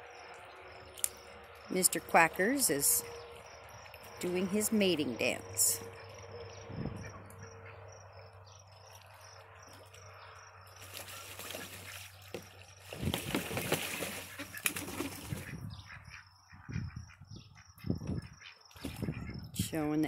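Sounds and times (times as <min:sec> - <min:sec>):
crickets chirping: 0:00.0 - 0:13.0
ducks splashing in water: 0:08.8 - 0:15.6, 0:18.8 - 0:19.3.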